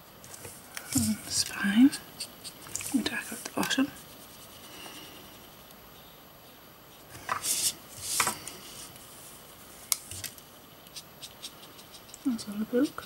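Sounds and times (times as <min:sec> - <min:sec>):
card sliding on wooden desk: 0:07.1 - 0:08.5.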